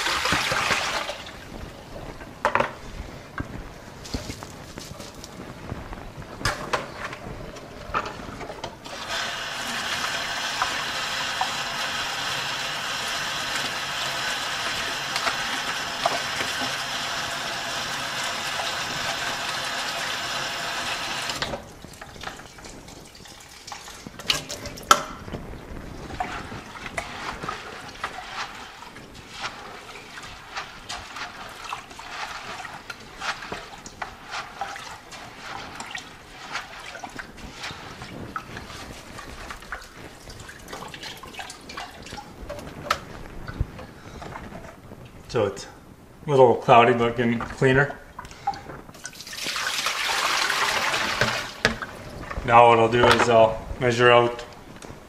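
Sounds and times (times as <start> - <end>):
hose water pouring into bucket: 0.0 - 1.6, 8.8 - 24.9, 26.0 - 43.6, 48.2 - 53.4.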